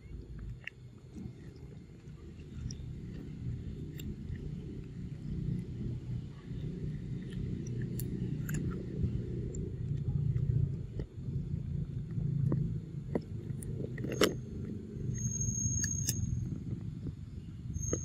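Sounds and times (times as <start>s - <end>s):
monkey chewing fruit: 0.0s - 11.0s
small wet clicks: 0.0s - 16.2s
steady low rumble: 0.0s - 18.0s
thin high whistle: 15.1s - 16.4s, 17.7s - 18.0s.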